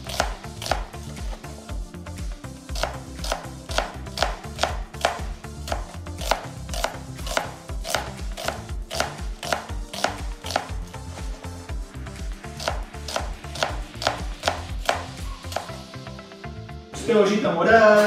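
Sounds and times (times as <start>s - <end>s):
knife slicing onion: 0.0s - 1.4s, 2.7s - 11.3s, 12.5s - 15.8s.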